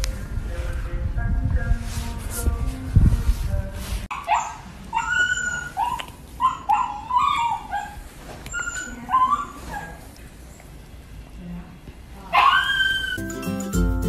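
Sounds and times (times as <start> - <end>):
puppy yelping and whimpering: 4.1 - 10.0.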